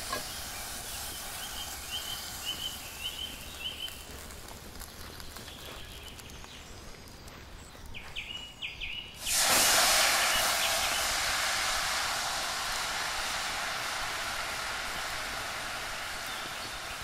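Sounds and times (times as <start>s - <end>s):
liquid sizzling in hot skillet: 0.0s - 5.0s, 9.2s - 17.0s.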